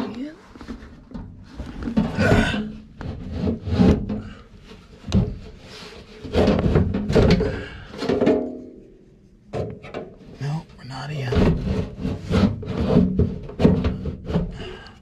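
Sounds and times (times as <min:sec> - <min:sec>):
sheet metal scraping and knocking: 0:00.6 - 0:08.8, 0:11.2 - 0:14.9.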